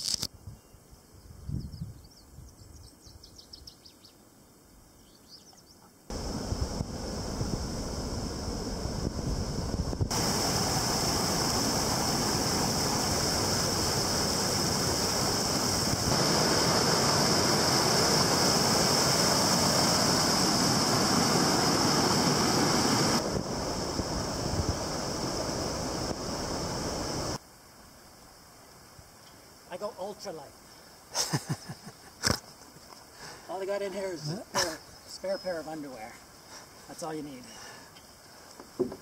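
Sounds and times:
whitewater rushing over waterfall: 0:10.1 - 0:27.4.

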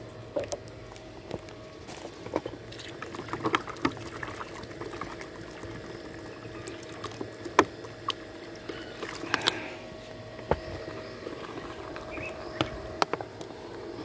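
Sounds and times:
water pouring into plastic bowl: 0:02.9 - 0:08.2.

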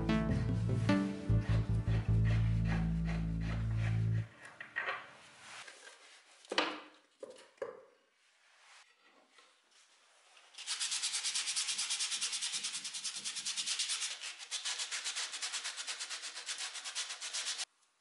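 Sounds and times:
sanding sponge on wood: 0:01.3 - 0:04.3, 0:10.6 - 0:17.7.

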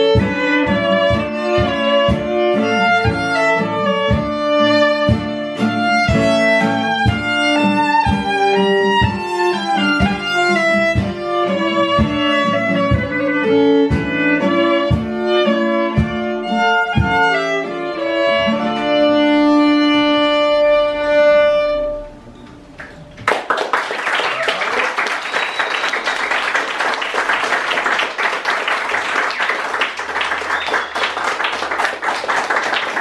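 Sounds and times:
violin playing a melody: 0:00.0 - 0:22.2
low plucked notes: 0:00.0 - 0:23.2.

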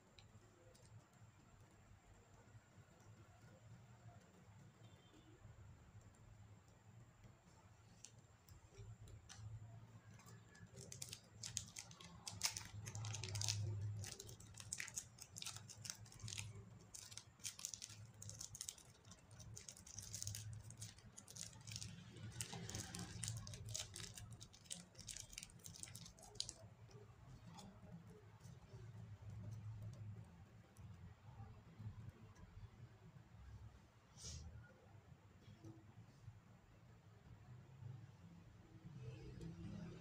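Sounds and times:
slime crackling and popping: 0:10.1 - 0:27.9.

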